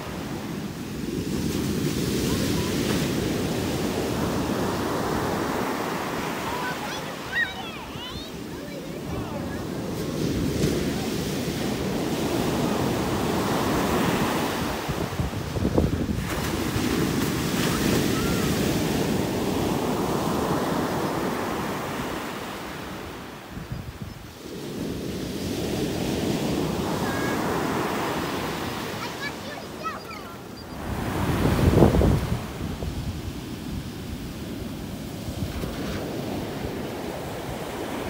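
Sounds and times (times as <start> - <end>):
surf breaking on beach: 0.0 - 23.7, 24.3 - 38.0
wind buffeting microphone: 7.6 - 20.3, 30.7 - 37.9.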